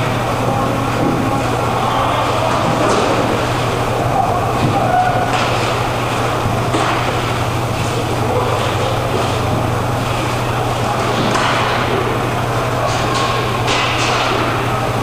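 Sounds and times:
hockey sticks and puck clacking: 0:00.0 - 0:03.8, 0:04.6 - 0:05.8, 0:06.7 - 0:07.4, 0:11.0 - 0:12.2, 0:12.8 - 0:14.8
distant shouting voices: 0:00.0 - 0:15.0
steady low hum: 0:00.0 - 0:15.0.

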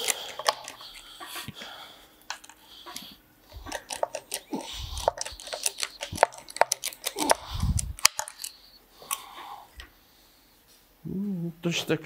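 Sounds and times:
metal tool clicks and taps: 0:03.6 - 0:09.2.

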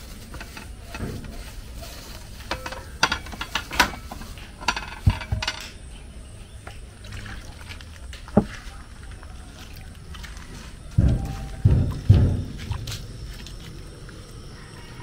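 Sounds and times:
dishes clinking and knocking: 0:02.4 - 0:05.9, 0:10.9 - 0:12.8.

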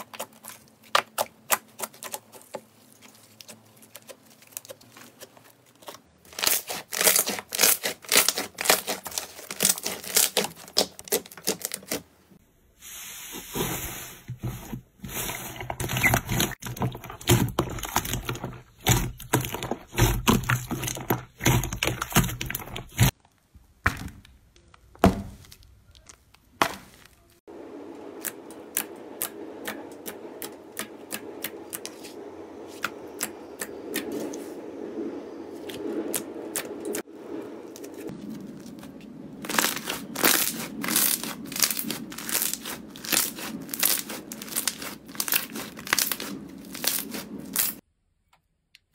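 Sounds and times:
slime crackling and popping: 0:39.4 - 0:47.8.

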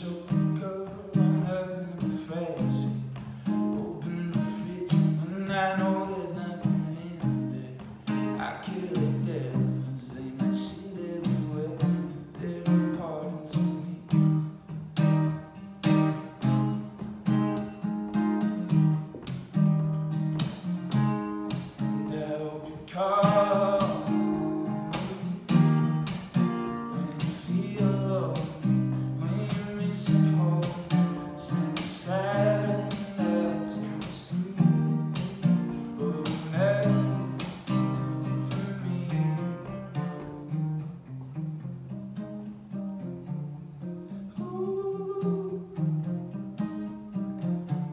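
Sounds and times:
man singing: 0:00.0 - 0:14.6, 0:21.8 - 0:40.4, 0:44.3 - 0:46.1
acoustic guitar strumming: 0:00.0 - 0:47.9.

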